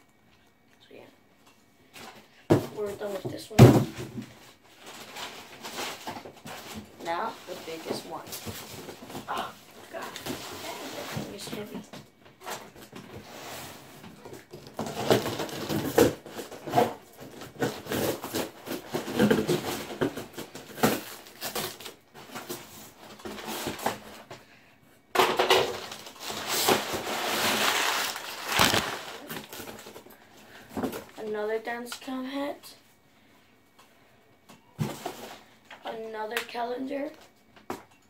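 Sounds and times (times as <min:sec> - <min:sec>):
cardboard rustling and tearing: 0:04.8 - 0:11.8, 0:14.4 - 0:24.2, 0:25.7 - 0:30.0.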